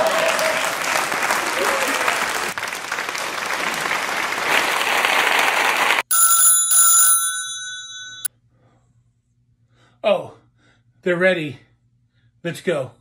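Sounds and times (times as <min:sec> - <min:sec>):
audience applause: 0:00.0 - 0:06.1
telephone ringing: 0:06.0 - 0:08.3.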